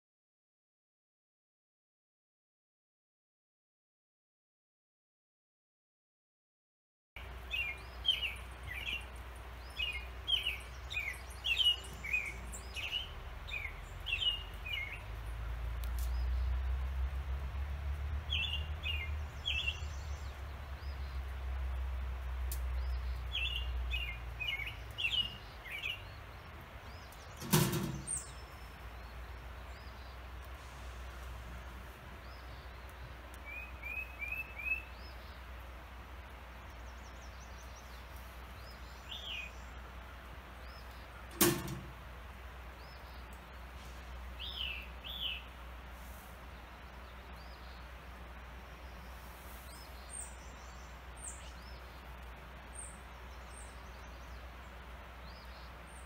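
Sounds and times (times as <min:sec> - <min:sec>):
low outdoor rumble: 0:07.2 - 0:56.0
songbirds chirping: 0:07.2 - 0:56.0
sharp knocks: 0:41.3 - 0:42.0.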